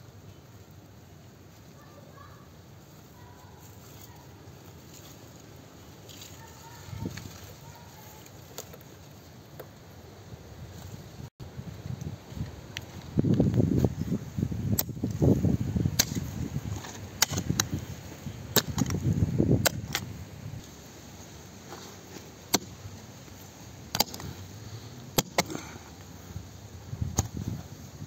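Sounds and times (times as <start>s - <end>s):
sharp clicks and knocks: 23.9s - 24.3s.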